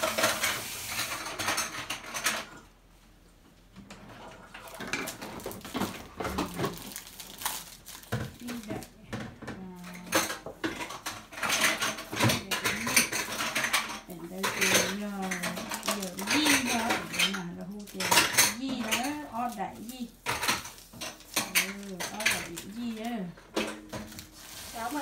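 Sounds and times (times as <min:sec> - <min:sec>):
dishes and cutlery clattering: 0:00.0 - 0:02.7, 0:09.1 - 0:25.0.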